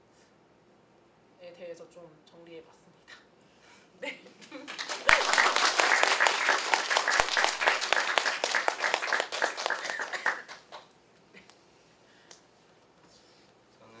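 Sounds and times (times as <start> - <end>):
audience applauding: 4.6 - 10.9.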